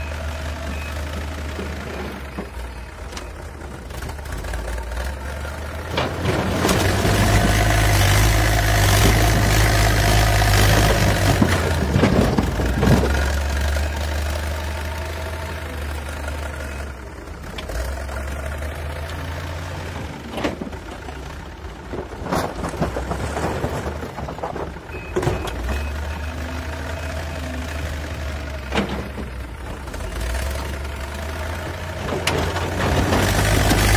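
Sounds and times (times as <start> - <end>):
diesel engine running: 0.0 - 33.9.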